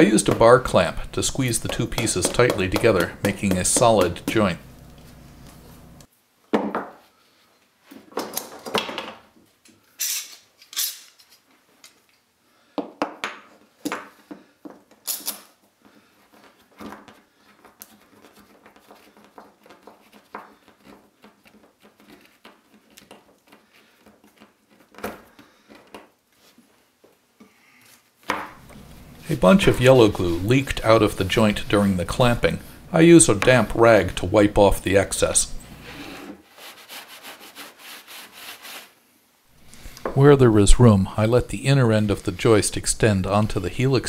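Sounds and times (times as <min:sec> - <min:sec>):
handling knocks: 0:00.0 - 0:04.6.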